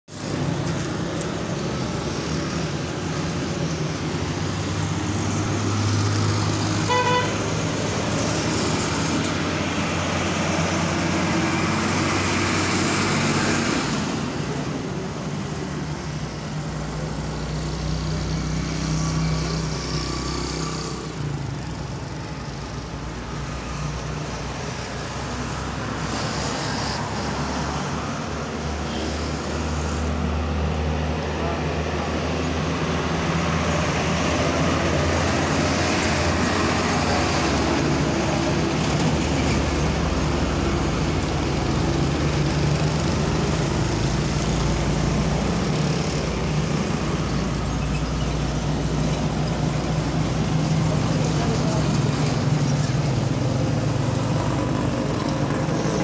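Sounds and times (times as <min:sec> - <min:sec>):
vehicle engines humming: 0:00.1 - 0:56.0
car horn toot: 0:06.9 - 0:07.4.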